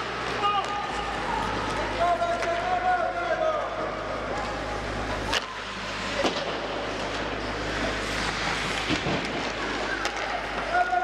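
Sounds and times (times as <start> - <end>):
skates scraping on ice: 4.4 - 11.0.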